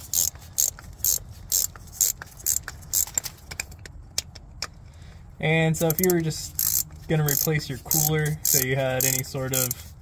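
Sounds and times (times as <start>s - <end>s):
ratchet wrench clicking: 0.0s - 3.9s, 5.8s - 9.8s.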